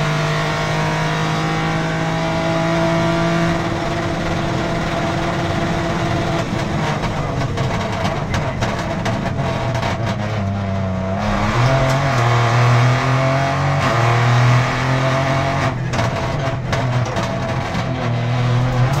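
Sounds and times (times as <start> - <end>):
car engine revving through gears: 0.0 - 19.0.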